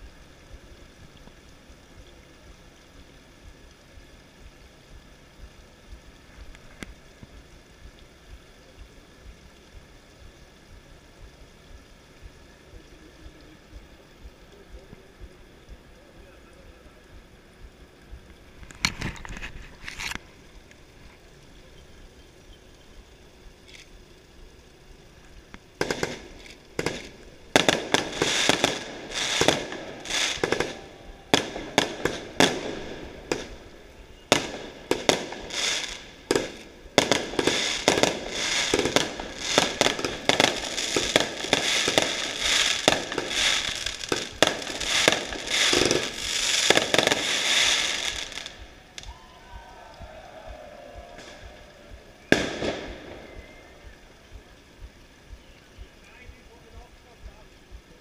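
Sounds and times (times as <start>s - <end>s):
firecrackers banging: 25.8s - 53.6s.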